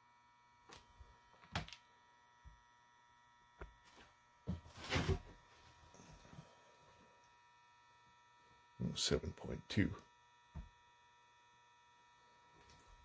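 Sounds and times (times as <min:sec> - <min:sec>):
faint electrical hum: 0:00.0 - 0:13.0.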